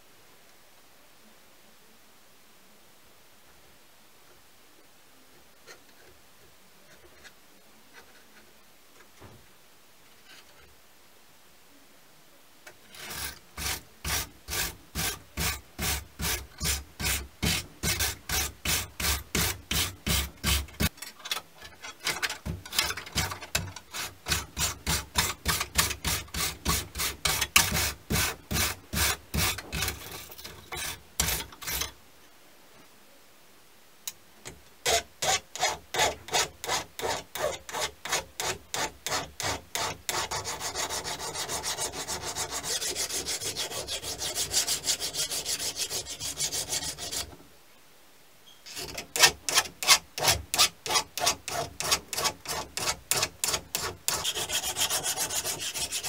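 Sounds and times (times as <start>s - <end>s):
sanding block rubbing on steel: 12.9s - 20.9s, 22.8s - 31.9s, 34.9s - 47.3s, 48.7s - 56.0s
file scraping steel blade: 12.9s - 21.0s, 21.6s - 32.0s, 34.8s - 47.4s, 48.7s - 56.0s.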